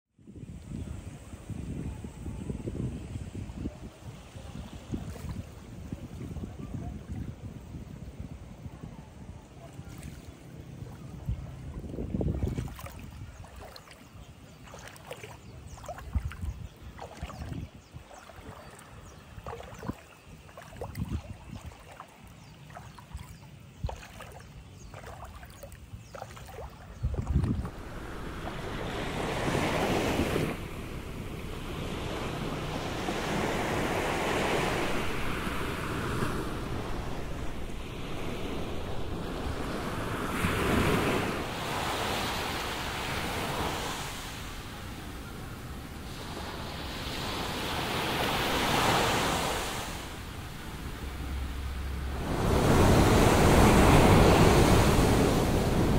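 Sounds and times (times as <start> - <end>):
water lapping over sand: 3.7 - 7.9, 9.4 - 55.9
small waves breaking on beach: 9.4 - 55.9
small splashes: 12.3 - 28.6.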